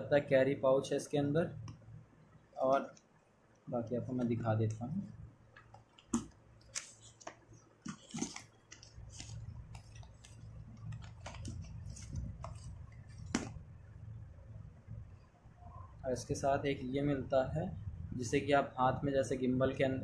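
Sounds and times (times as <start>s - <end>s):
low steady hum: 0.0s - 20.0s
paper and cardboard rustling: 6.1s - 13.6s.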